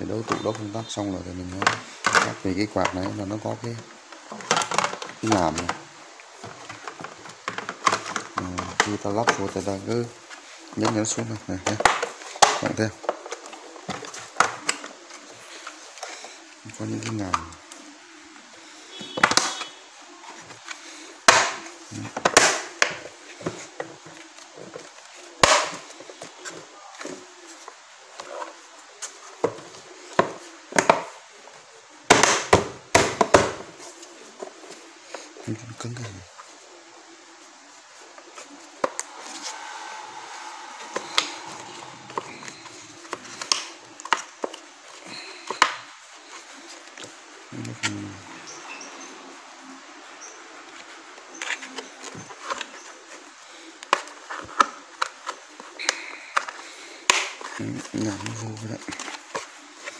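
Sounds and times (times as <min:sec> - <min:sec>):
plastic parts knocking and clacking: 0:01.6 - 0:03.4, 0:04.2 - 0:05.8, 0:06.4 - 0:09.6.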